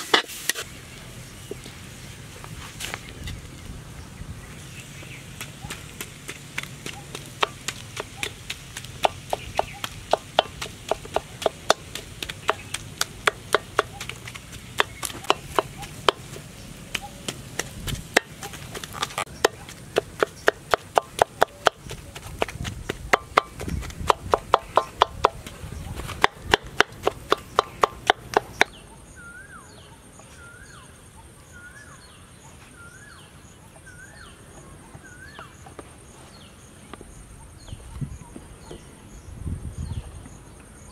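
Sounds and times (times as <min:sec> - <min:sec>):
knife chopping on a board: 0:06.8 - 0:25.5, 0:26.1 - 0:28.7.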